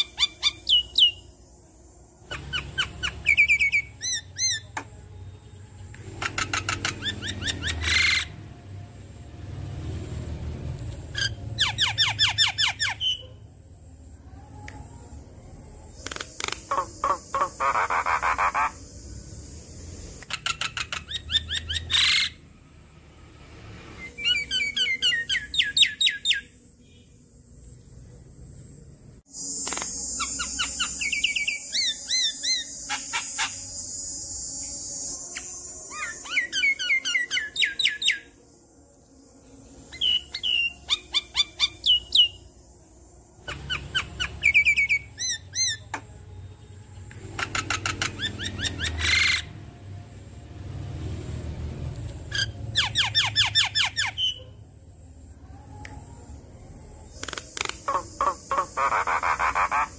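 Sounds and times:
bird chirping and whistling: 0.0 - 1.2, 2.3 - 4.7, 6.2 - 8.3, 11.2 - 13.2, 20.2 - 22.4, 24.0 - 26.5, 29.4 - 33.9, 35.3 - 38.3, 40.0 - 42.4, 43.5 - 45.9, 47.4 - 49.5, 52.3 - 54.4, 57.1 - 59.9
harsh rasping bird calls: 16.0 - 18.9, 47.2 - 49.5, 57.1 - 59.9.

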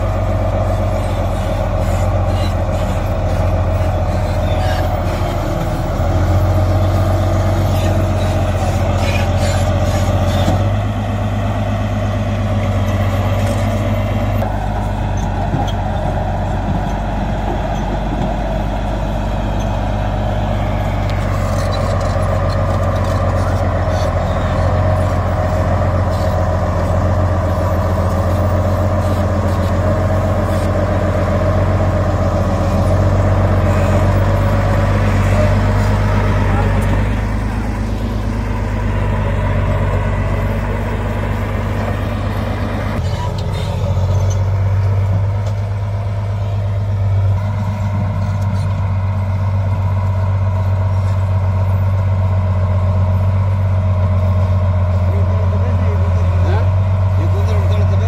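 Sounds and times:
bulldozer diesel engine running: 0.0 - 58.0
blade pushing soil and rocks: 20.6 - 45.8.

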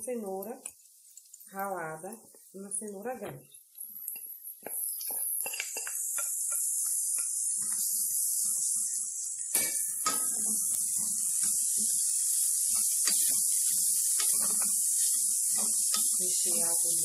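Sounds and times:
vegetables sizzling in hot oil: 0.0 - 17.0
sharp knocks against a pot: 9.5 - 10.4
spatula scraping a pot: 9.8 - 17.0.

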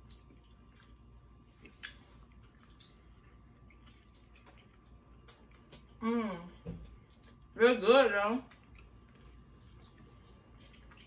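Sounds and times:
faint wet mouth clicks eating: 0.0 - 5.9.

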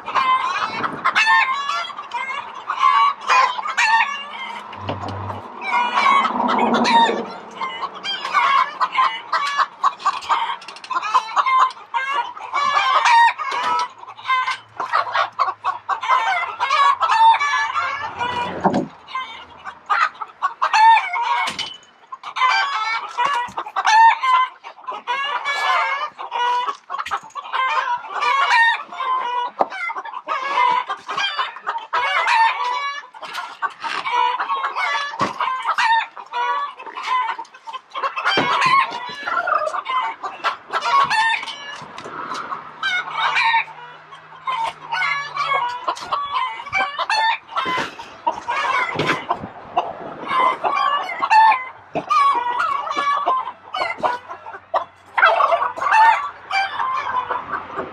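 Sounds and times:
chickens clucking: 0.0 - 57.9
rooster crowing: 5.6 - 8.8.

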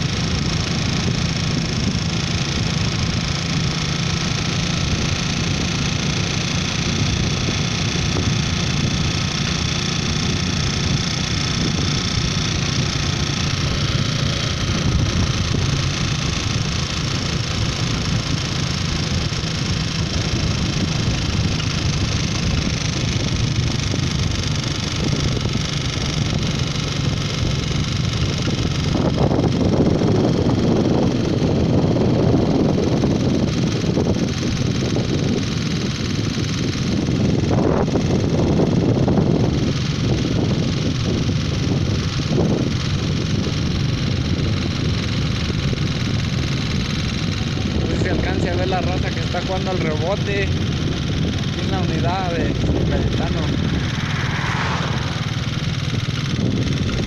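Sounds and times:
tyre and road rush: 0.0 - 57.0
vehicle engine drone: 0.0 - 57.0
rough rush of wind: 47.0 - 57.0.

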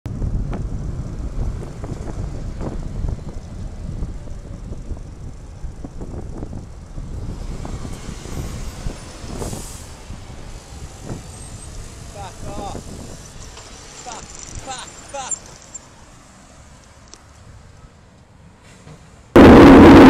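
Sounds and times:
wind buffeting microphone: 0.1 - 13.5
traffic noise: 0.1 - 20.0.

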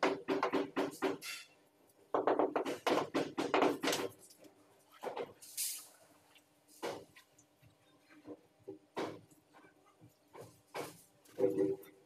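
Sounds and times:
rapid tapping on ceramic tile: 2.1 - 4.1.

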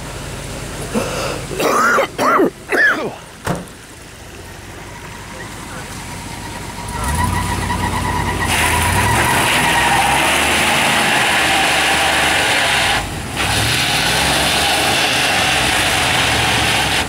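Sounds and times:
engine revving under load: 5.6 - 17.0.

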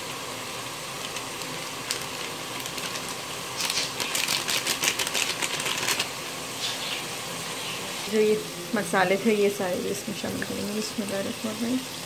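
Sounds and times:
chicken sizzling in pot: 0.0 - 12.0
spice packet crinkling: 1.0 - 6.2.

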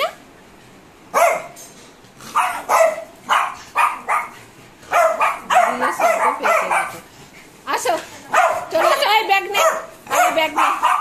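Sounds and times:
small dog barking: 1.1 - 1.6, 2.3 - 7.0, 8.3 - 11.0.

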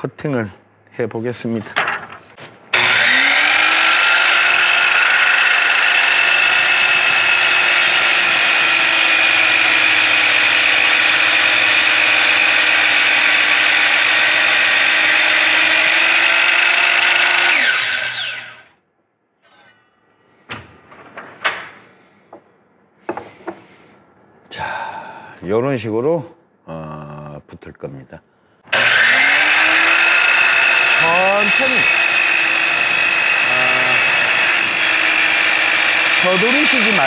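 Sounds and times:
miter saw whining: 2.7 - 18.7, 28.7 - 37.0
saw blade cutting wood: 2.7 - 18.7, 28.7 - 37.0.

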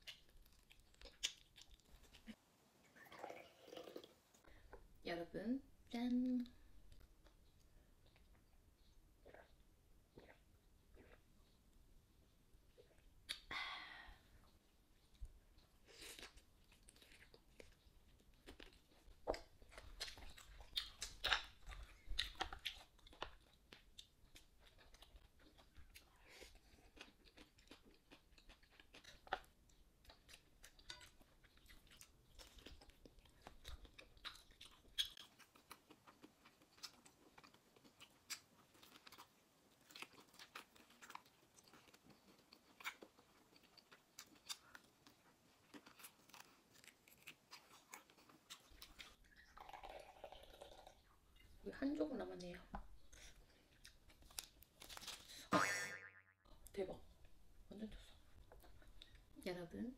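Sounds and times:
person chewing and crunching food: 0.0 - 2.4, 6.8 - 11.7, 14.5 - 51.6, 52.8 - 56.1.

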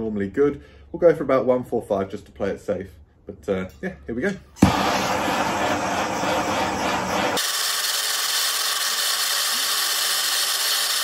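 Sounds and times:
gas torch hissing: 4.6 - 11.0.

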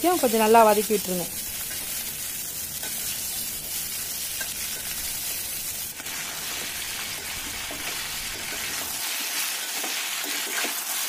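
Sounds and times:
vegetables sizzling in oil: 0.0 - 11.0.

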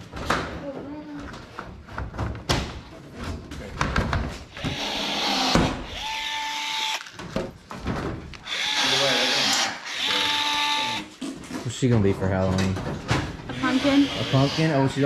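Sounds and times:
cordless drill whining: 4.5 - 7.2, 8.4 - 11.1, 13.5 - 15.0.

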